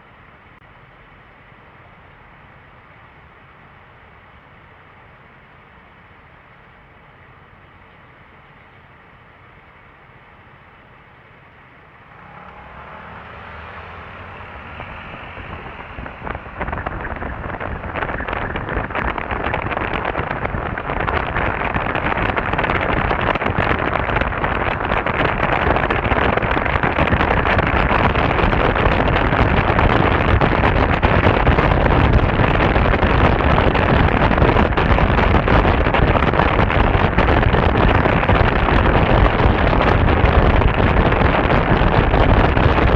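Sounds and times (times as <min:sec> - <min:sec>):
scooter road noise: 0:11.8 - 0:42.9
wind buffeting microphone: 0:12.0 - 0:42.9.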